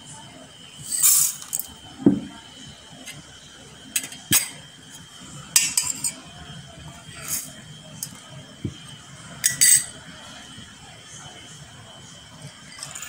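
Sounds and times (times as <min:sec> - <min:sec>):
metal spoon clinking on glass and tin: 0:09.4 - 0:09.9.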